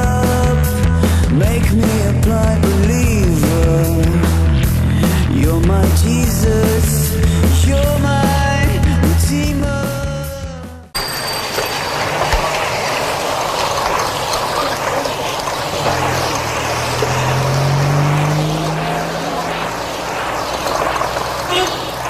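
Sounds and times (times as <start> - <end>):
passing cars: 11.0 - 22.0
car engine climbing in pitch: 11.9 - 22.0.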